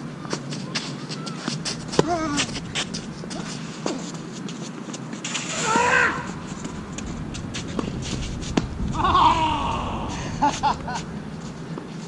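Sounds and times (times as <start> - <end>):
racket striking ball: 1.4 - 4.1.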